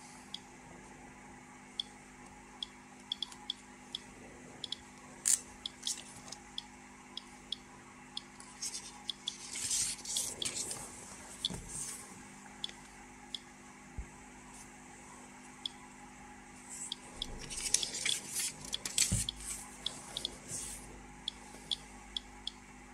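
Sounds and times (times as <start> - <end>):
geiger counter clicks: 2.6 - 7.6.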